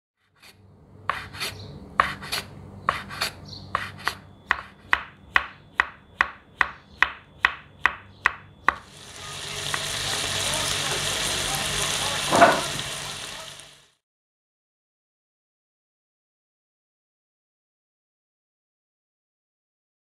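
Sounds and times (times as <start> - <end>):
frying sizzle: 8.7 - 14.0.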